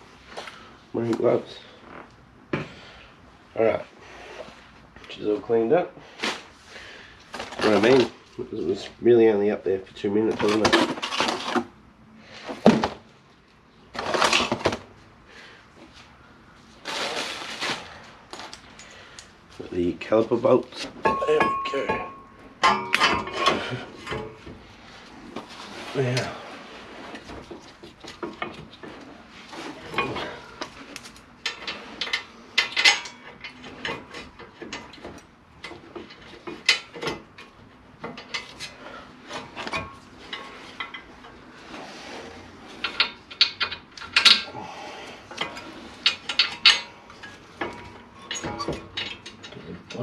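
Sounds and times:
metal bolts clinking and scraping: 0:20.7 - 0:50.0.

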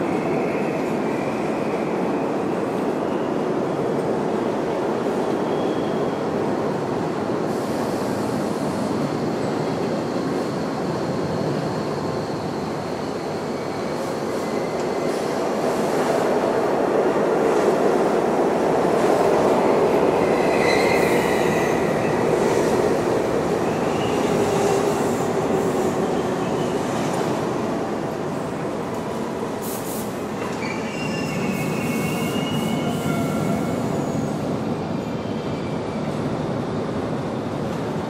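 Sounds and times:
subway train rumble: 0:00.0 - 0:38.0
faint high wheel squeals: 0:30.5 - 0:34.3.

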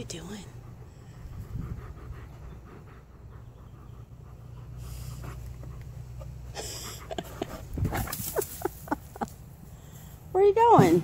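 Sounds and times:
dog panting: 0:00.0 - 0:08.3
dog breathy huff: 0:06.4 - 0:08.1.

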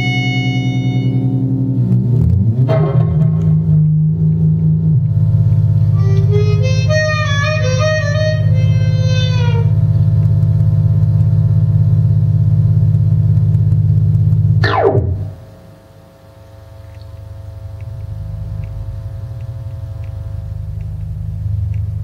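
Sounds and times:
fast downward pitch sweep: 0:00.0 - 0:09.8, 0:14.6 - 0:15.8
low synthesizer drone: 0:00.0 - 0:22.0.

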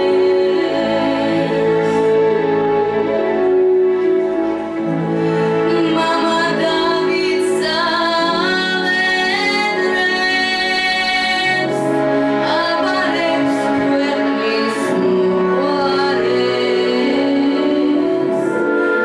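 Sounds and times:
woman singing slow song: 0:00.0 - 0:02.3, 0:05.7 - 0:18.7
orchestral accompaniment: 0:00.0 - 0:19.0.

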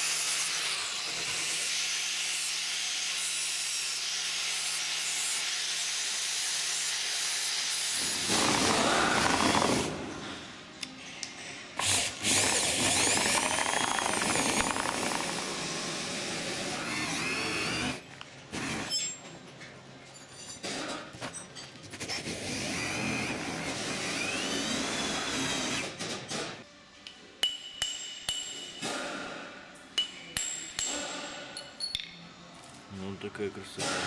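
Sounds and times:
electric drill motor: 0:08.2 - 0:09.9, 0:11.8 - 0:18.0.

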